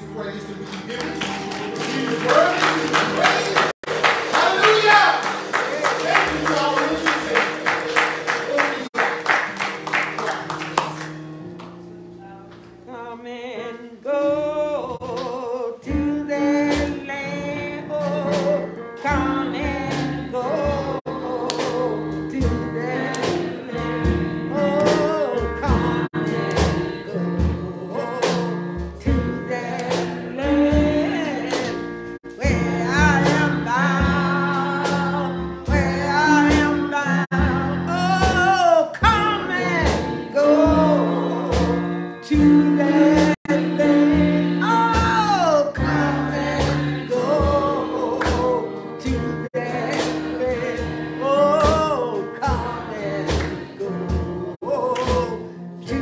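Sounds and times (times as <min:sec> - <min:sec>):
gospel band playing: 0:00.0 - 0:56.0
person singing: 0:12.8 - 0:56.0.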